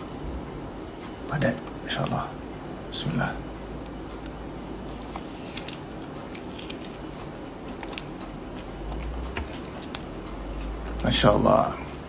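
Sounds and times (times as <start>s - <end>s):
steady low hum: 0.0s - 12.0s
person chewing with crunches: 3.8s - 11.1s.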